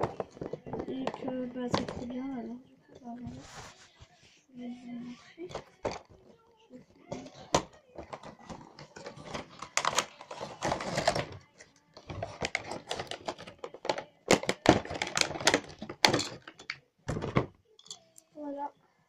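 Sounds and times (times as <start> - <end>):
packaging clicks and taps: 7.1 - 17.5.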